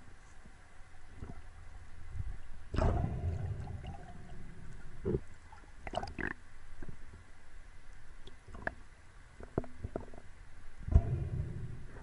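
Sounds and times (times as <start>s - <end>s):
underwater low rumble: 0.6s - 6.0s, 9.5s - 12.0s
underwater rushing burst: 2.8s - 4.8s.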